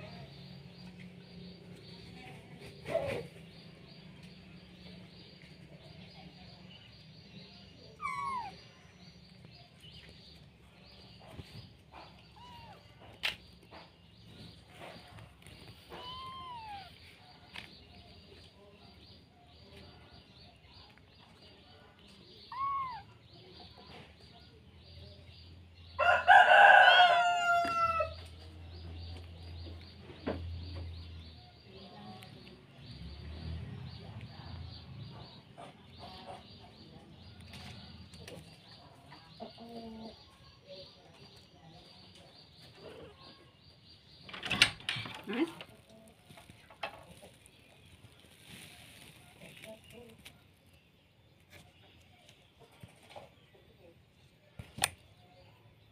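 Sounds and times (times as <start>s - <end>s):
drawn-out animal call: 7.9s - 8.8s.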